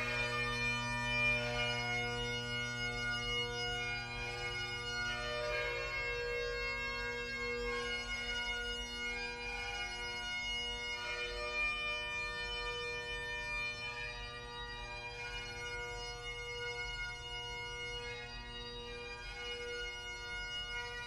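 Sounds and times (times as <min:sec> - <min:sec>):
bagpipe playing slow lament: 0:00.0 - 0:21.0.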